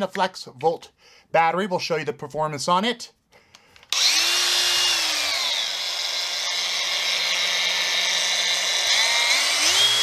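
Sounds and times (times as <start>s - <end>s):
angle grinder whining: 3.8s - 10.0s.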